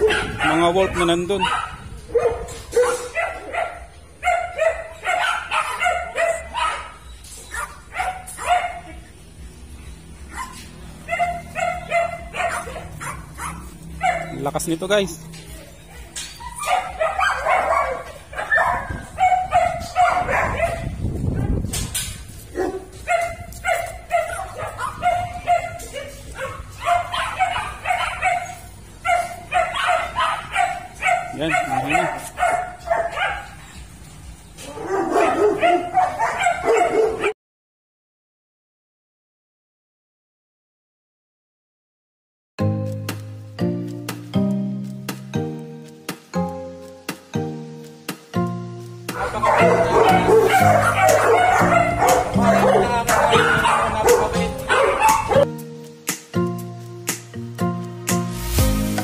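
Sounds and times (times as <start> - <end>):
dog yipping and barking: 0.0 - 9.1, 10.2 - 14.6, 15.6 - 33.9, 34.6 - 37.4, 49.1 - 55.5.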